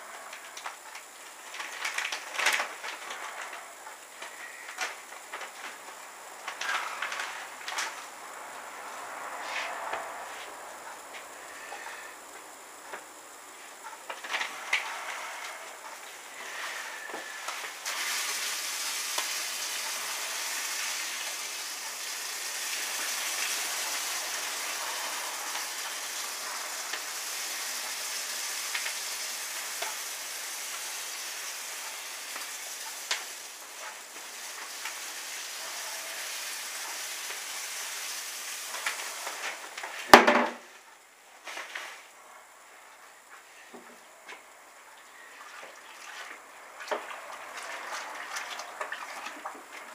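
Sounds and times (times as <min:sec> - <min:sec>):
grain pouring into water: 0:17.8 - 0:39.3.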